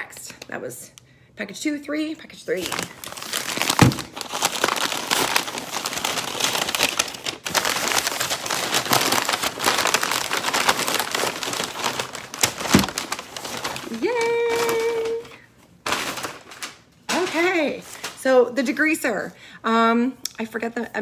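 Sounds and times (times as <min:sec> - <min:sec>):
stiff paper bag crinkling: 0:02.5 - 0:18.2.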